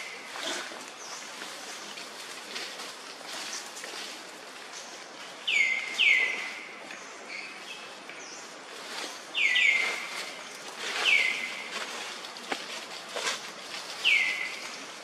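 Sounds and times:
faint outdoor hiss: 0.0 - 15.0
bird calling: 5.4 - 12.2, 13.2 - 15.0.

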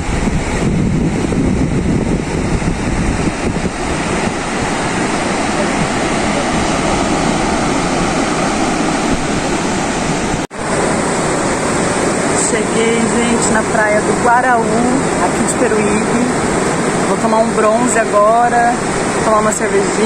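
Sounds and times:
surf breaking on beach: 0.0 - 20.0
wind rumbling on microphone: 0.0 - 20.0.

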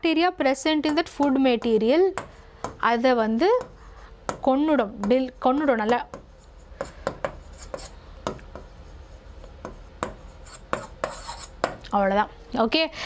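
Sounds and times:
pen tapping on whiteboard: 9.6 - 11.8.

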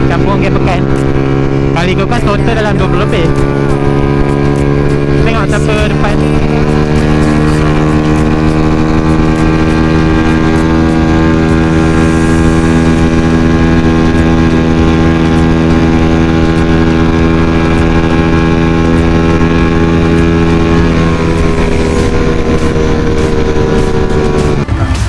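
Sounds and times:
motorcycle engine at high speed: 0.0 - 25.0.

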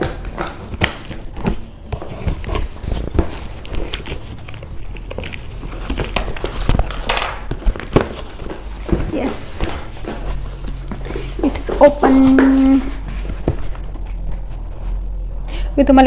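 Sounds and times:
scissors slitting packing tape: 5.8 - 8.1.

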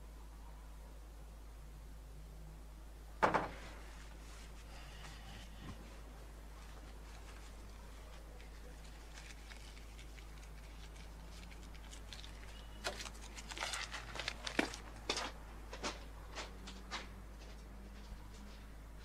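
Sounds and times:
faint steady hum: 0.0 - 19.0
footsteps on gravel: 6.5 - 18.6.

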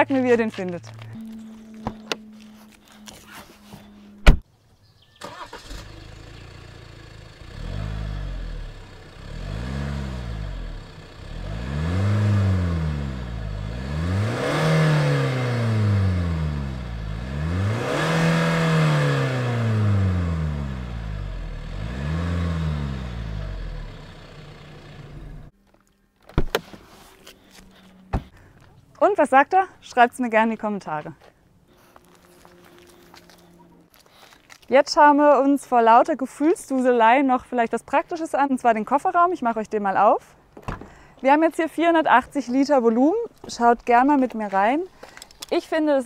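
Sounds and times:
sharp thump: 4.2 - 4.4
diesel engine revving: 5.2 - 25.5.

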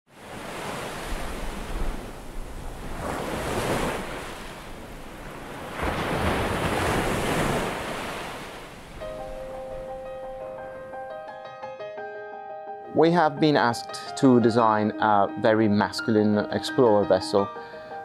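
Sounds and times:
ocean waves breaking: 0.1 - 10.8.

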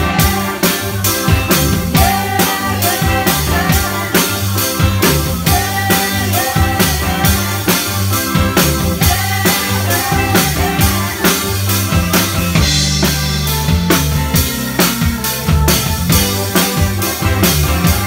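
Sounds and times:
drum kit beat: 0.0 - 18.0
live band playing: 0.0 - 18.0
woman singing into microphone: 1.9 - 4.4, 5.5 - 7.7.

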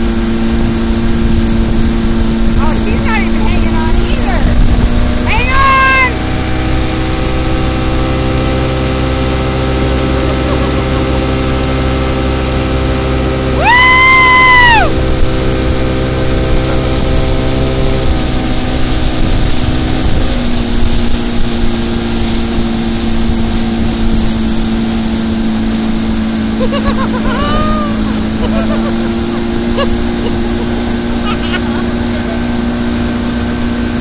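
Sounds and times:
motorboat engine running: 0.0 - 34.0
water rushing from wake: 0.0 - 34.0
person yelling: 5.3 - 6.2, 13.6 - 14.9, 27.0 - 29.0.

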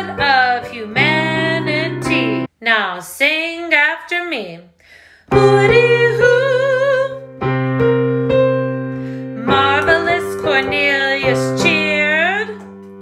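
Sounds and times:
electric piano chords: 0.0 - 2.5, 5.3 - 13.0
woman singing with vibrato: 0.0 - 4.6, 5.3 - 7.4, 9.4 - 12.6.

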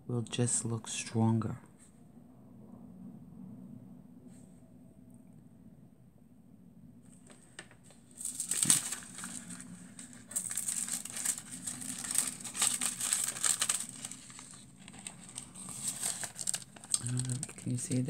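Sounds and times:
foil and tissue paper crinkling: 7.3 - 18.0.

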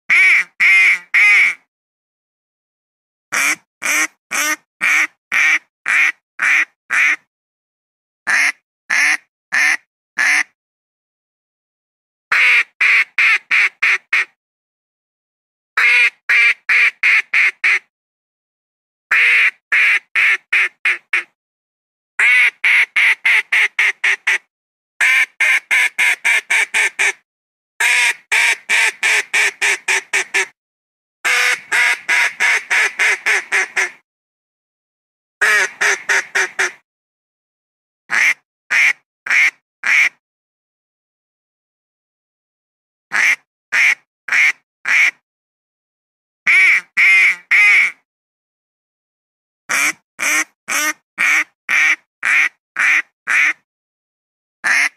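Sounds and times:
duck quacking rapidly: 0.1 - 1.6, 3.3 - 7.2, 8.3 - 10.5, 12.3 - 14.3, 15.8 - 17.9, 19.1 - 21.3, 22.2 - 27.2, 27.8 - 30.5, 31.2 - 34.0, 35.4 - 36.8, 38.1 - 40.2, 43.1 - 45.2, 46.5 - 48.0, 49.7 - 53.6, 54.6 - 54.9.

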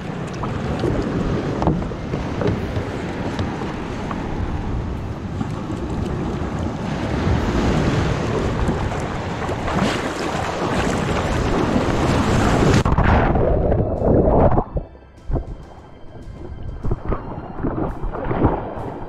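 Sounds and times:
surf washing around kayak hull: 0.0 - 14.7
wind buffeting microphone: 0.0 - 19.0.

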